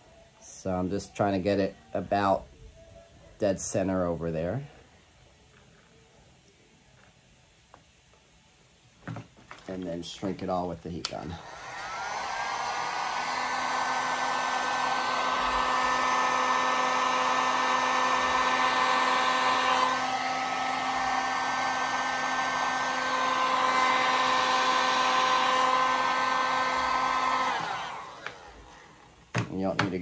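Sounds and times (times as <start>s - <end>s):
heat gun blowing: 11.3s - 29.2s.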